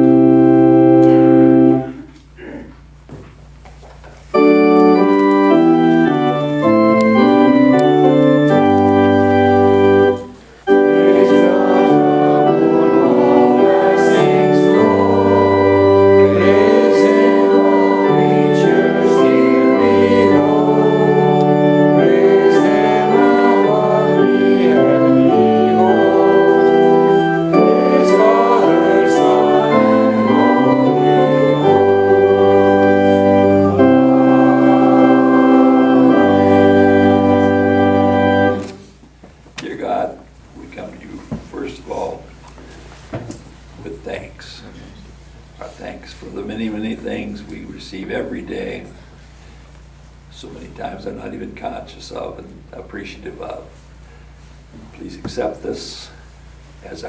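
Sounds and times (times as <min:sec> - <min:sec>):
organ playing held chords: 0:00.0 - 0:02.2, 0:04.2 - 0:39.1.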